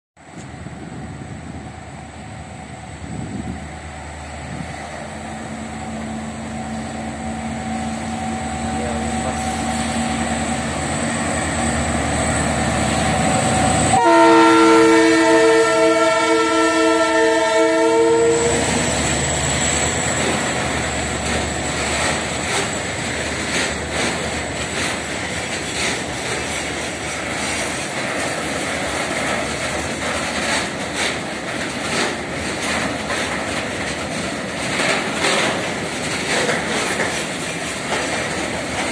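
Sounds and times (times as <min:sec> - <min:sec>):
wheels clacking over rail joints: 0:04.5 - 0:38.9
train horn blast: 0:13.8 - 0:18.9.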